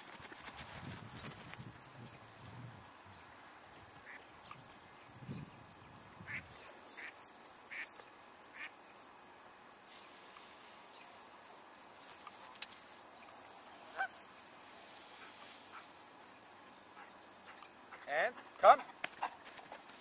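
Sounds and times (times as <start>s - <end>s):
high insect drone: 0.0s - 20.0s
short calls: 13.8s - 14.5s.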